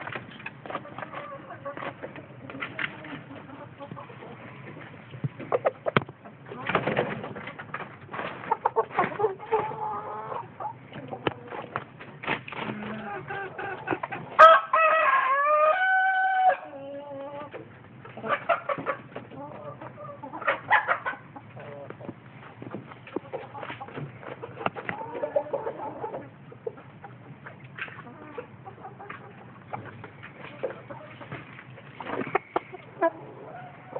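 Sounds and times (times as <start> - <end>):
chickens clucking: 0.0 - 33.9
rooster crowing: 14.4 - 16.7.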